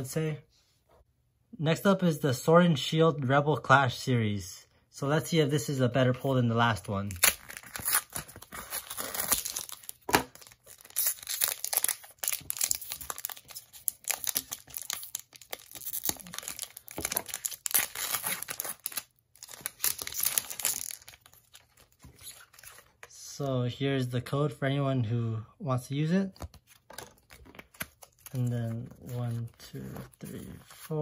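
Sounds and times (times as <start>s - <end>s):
foil wrapper tearing and crinkling: 7.1s - 22.8s.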